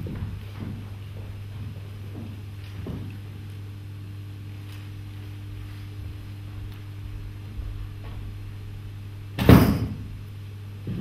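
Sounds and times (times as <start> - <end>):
low electrical hum: 0.0 - 11.0
loud sharp thump: 9.4 - 10.1.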